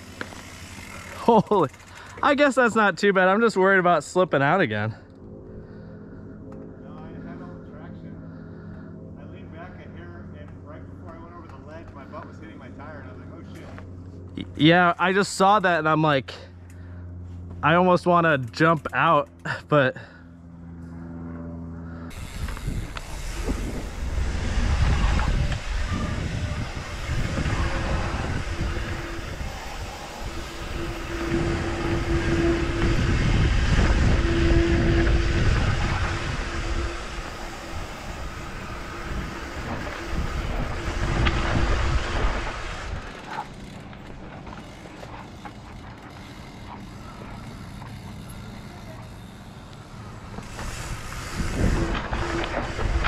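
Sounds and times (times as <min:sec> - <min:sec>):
bike tyre rumble on dirt: 0:00.0 - 0:02.3, 0:22.1 - 0:53.0
bike and gear rattling: 0:00.0 - 0:04.2, 0:05.0 - 0:53.0
steady tone: 0:20.5 - 0:43.2.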